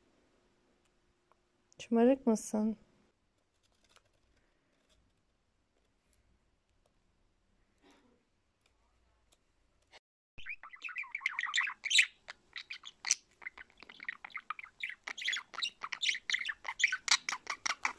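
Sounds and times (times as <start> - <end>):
budgerigar chattering: 10.4 - 17.9.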